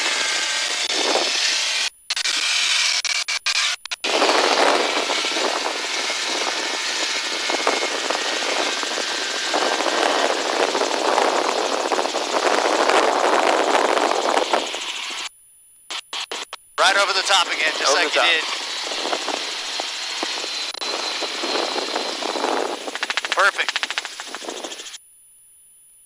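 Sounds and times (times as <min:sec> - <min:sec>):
helicopter cabin rushing noise: 0:04.0 - 0:15.3, 0:16.3 - 0:25.0.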